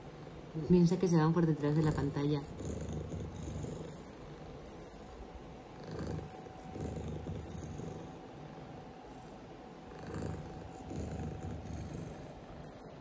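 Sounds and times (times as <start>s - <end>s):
cat purring: 0.0s - 4.7s, 5.5s - 13.0s
high-pitched chirps: 2.2s - 2.5s, 3.9s - 5.1s, 6.3s - 6.5s, 7.4s - 7.7s, 12.6s - 13.0s.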